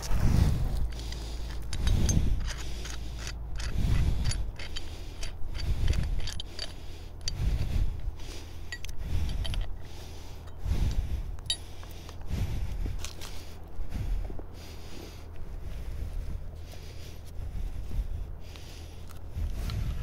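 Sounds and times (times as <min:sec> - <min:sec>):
metal rigging scraping and clinking: 0:00.0 - 0:12.2.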